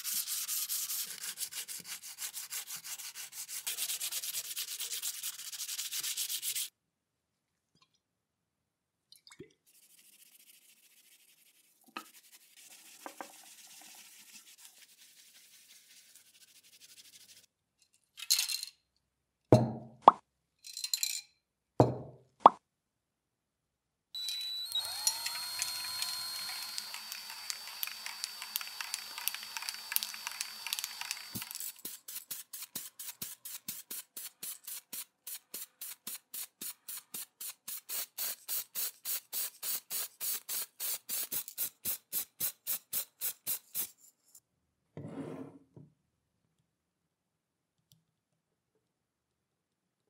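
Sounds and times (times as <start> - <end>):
cordless drill running: 24.2 - 31.8
aerosol spray can hissing: 24.8 - 44.0.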